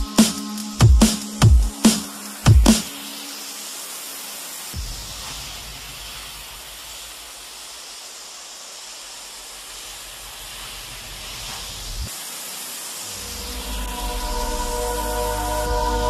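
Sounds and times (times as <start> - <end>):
steady hissing rush: 0.0 - 16.0
low rumble: 13.2 - 16.0.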